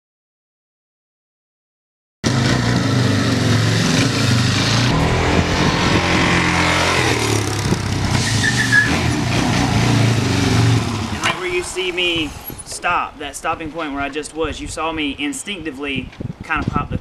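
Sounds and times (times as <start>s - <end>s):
motorcycle engine running: 2.3s - 12.7s.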